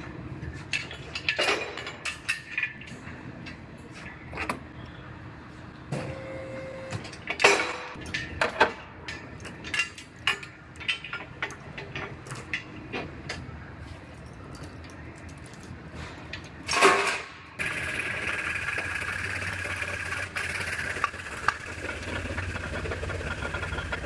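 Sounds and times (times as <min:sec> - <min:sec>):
metal clanks and knocks: 0:00.5 - 0:04.6, 0:07.0 - 0:13.6
brief steady tone: 0:05.9 - 0:07.0.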